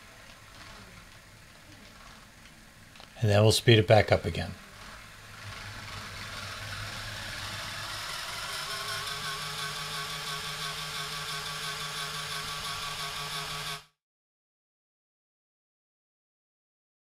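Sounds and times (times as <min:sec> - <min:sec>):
small motors whirring: 0:04.6 - 0:14.0.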